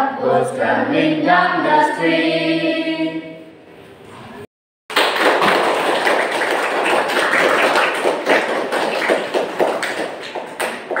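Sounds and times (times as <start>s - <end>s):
children clapping: 4.9s - 11.0s.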